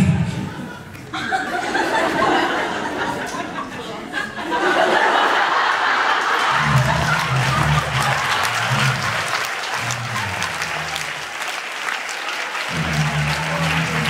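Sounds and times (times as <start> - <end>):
audience clapping: 4.7 - 14.0.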